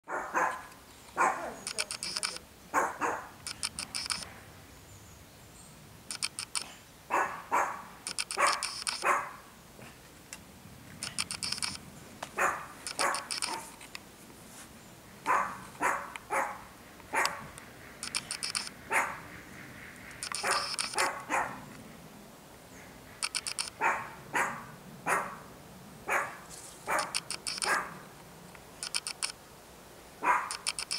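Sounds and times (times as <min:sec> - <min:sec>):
dog barking: 0:00.0 - 0:01.6, 0:02.7 - 0:03.4, 0:07.1 - 0:09.4, 0:12.4 - 0:13.7, 0:15.2 - 0:17.5, 0:18.9 - 0:19.3, 0:20.4 - 0:21.7, 0:23.8 - 0:25.5, 0:26.1 - 0:28.0, 0:30.2 - 0:30.6.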